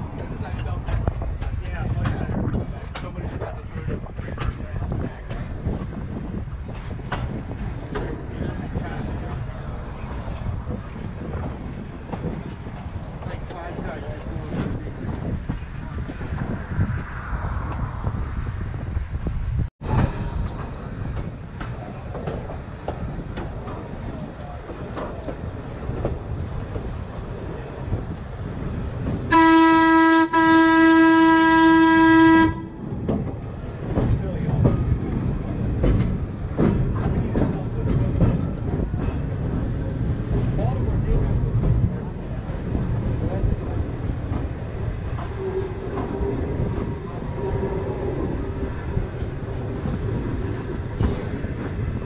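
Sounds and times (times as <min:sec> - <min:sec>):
streetcars rumbling on rails: 0:00.0 - 0:52.0
streetcar air horn blasts: 0:29.3 - 0:32.8.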